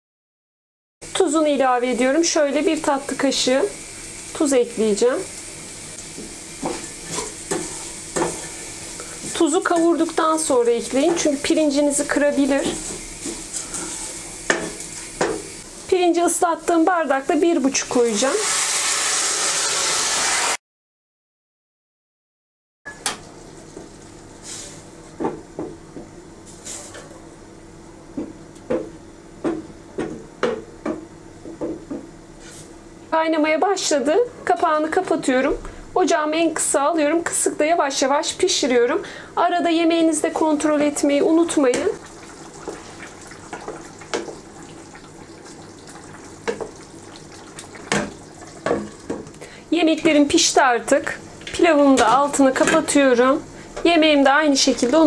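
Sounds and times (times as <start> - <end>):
spoon knocking against pot: 14.5 - 15.5
wooden spoon knocking against pan: 14.5 - 15.5, 28.2 - 32.1
wooden spoon stirring stew: 42.0 - 49.3
stew bubbling and hissing: 42.0 - 49.6.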